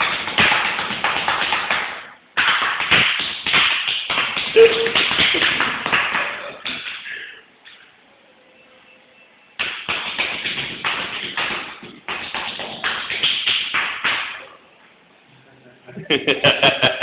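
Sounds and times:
rapid tapping and knocking: 0.0s - 6.9s, 9.6s - 14.3s.

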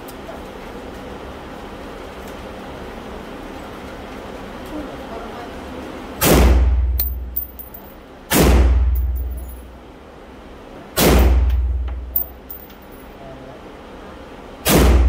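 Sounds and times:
light metallic clinks: 7.0s - 8.0s, 9.0s - 9.6s, 12.2s - 13.1s.

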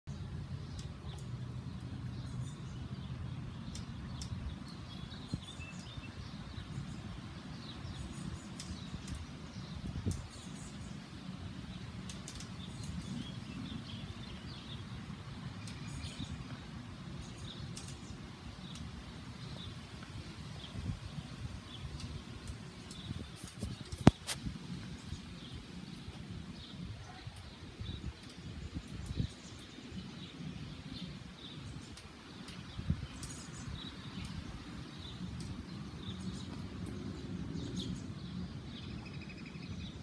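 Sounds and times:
small birds chirping: 0.1s - 40.0s
sharp clicks: 8.5s - 10.4s, 12.0s - 13.3s, 17.7s - 18.9s, 21.9s - 24.5s.

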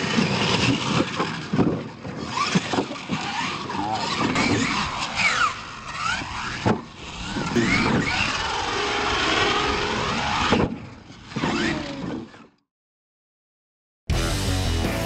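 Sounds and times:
electric motor whining: 2.3s - 10.6s.

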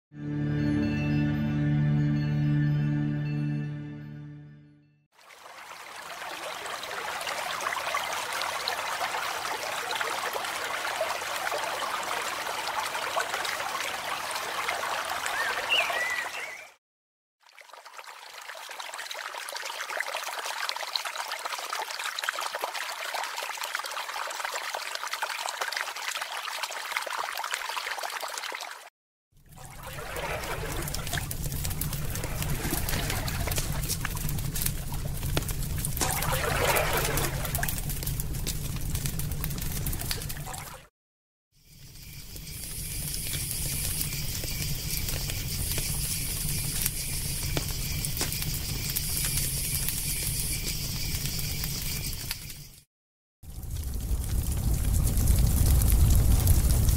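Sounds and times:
creek running over stones: 5.1s - 16.7s, 17.4s - 28.9s, 29.5s - 40.9s
campfire crackling and popping: 29.7s - 40.7s, 42.3s - 52.7s, 53.5s - 56.9s.

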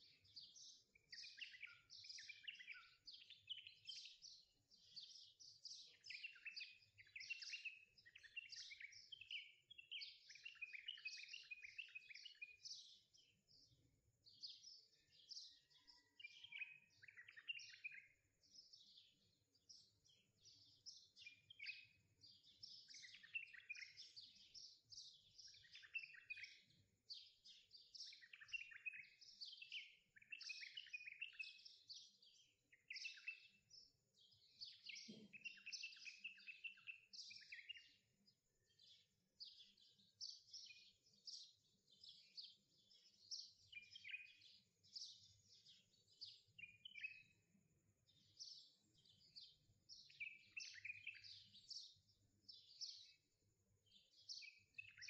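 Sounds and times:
small birds chirping: 0.0s - 55.0s.

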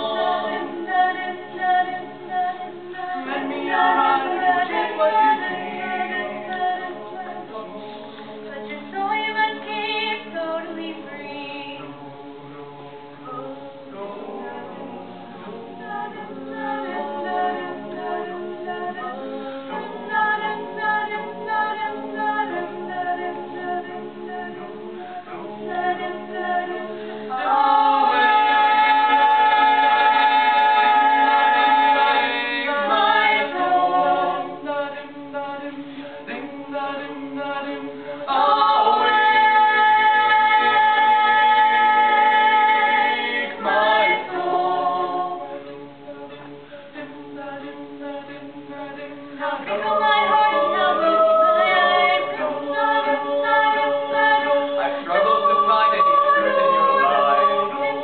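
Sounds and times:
group singing a cappella: 0.0s - 12.0s, 13.2s - 58.0s.

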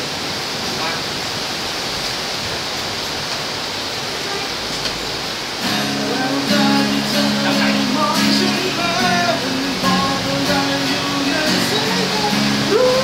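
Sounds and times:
heavy rain hiss: 0.0s - 13.0s
acoustic guitar chords: 5.6s - 13.0s.

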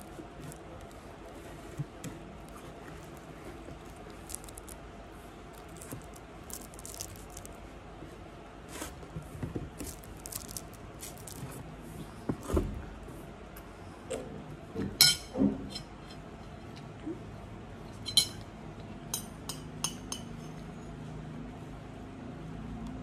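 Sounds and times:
paper carton crinkling: 0.0s - 4.8s, 5.5s - 7.6s, 9.8s - 11.6s.

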